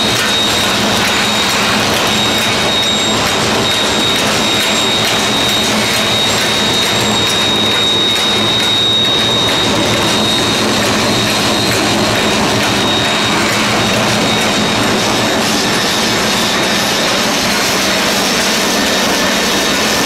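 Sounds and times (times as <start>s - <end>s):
high steady whine: 0.0s - 20.0s
packaging machine running: 0.0s - 20.0s.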